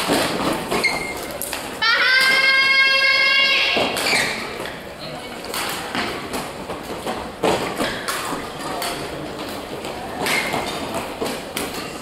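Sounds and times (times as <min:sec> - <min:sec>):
footfalls on court floor: 0:00.0 - 0:02.8, 0:05.4 - 0:12.0.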